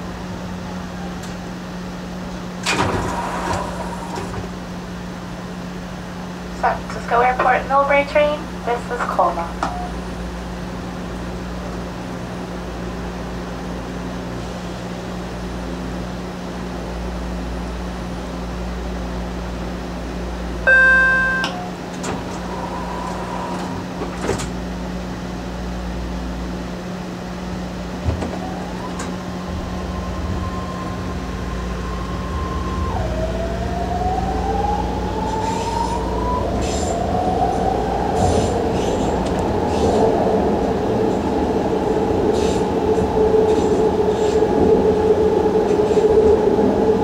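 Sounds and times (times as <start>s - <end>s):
train car hum and rumble: 0.0s - 47.0s
loud ringing tone: 20.7s - 21.8s.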